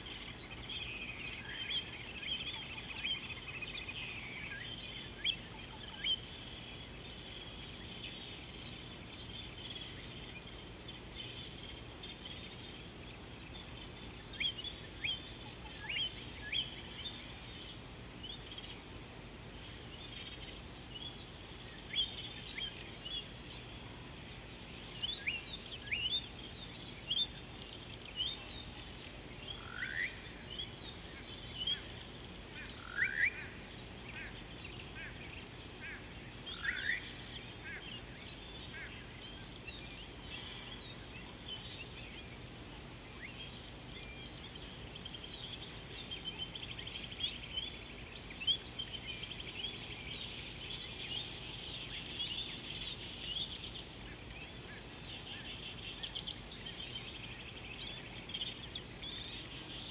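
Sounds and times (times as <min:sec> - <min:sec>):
birds chirping: 0:00.0 - 0:59.9
faint background hiss: 0:00.0 - 0:59.9
rising whistled bird calls: 0:32.6 - 0:34.4.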